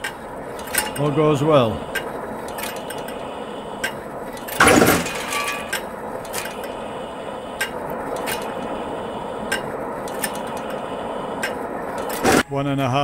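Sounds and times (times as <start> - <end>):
gasifier mechanical running noise: 0.0 - 12.4
loud clatter: 2.0 - 6.8.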